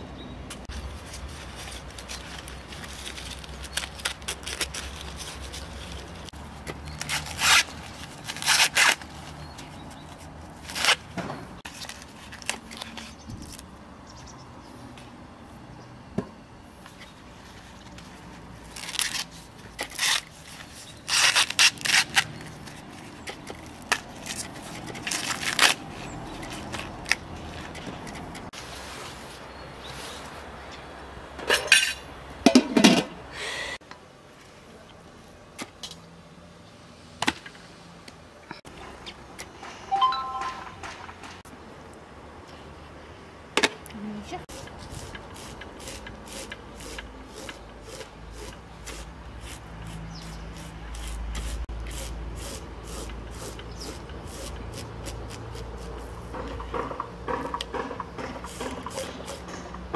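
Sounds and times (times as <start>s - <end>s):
corn husks ripping: 0.8s - 9.3s, 18.6s - 27.7s.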